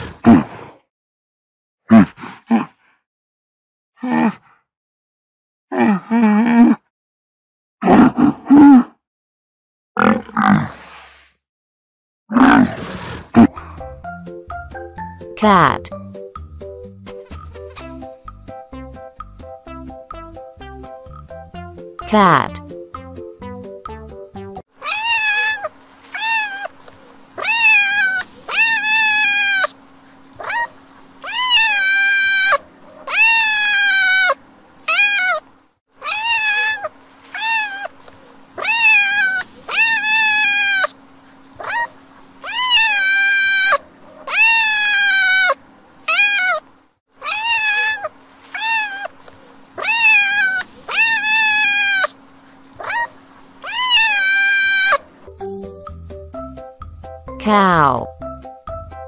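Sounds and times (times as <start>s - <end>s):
cats meowing: 24.8s - 26.7s, 27.4s - 29.7s, 30.4s - 35.4s, 36.0s - 37.9s, 38.6s - 40.9s, 41.6s - 46.6s, 47.2s - 49.1s, 49.8s - 52.1s, 52.8s - 55.0s
faint steady hum: 24.8s - 55.7s.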